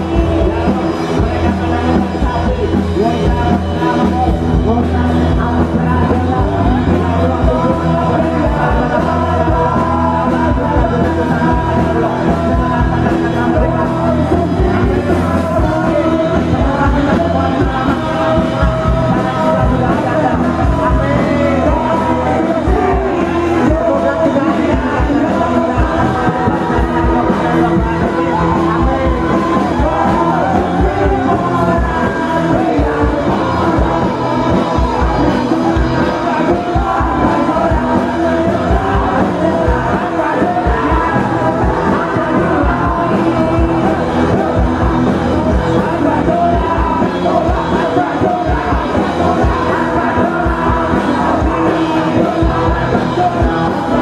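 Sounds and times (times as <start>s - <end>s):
loud rock music: 0.0s - 54.0s
person singing and shouting: 0.0s - 54.0s
steady drum beat: 0.0s - 54.0s.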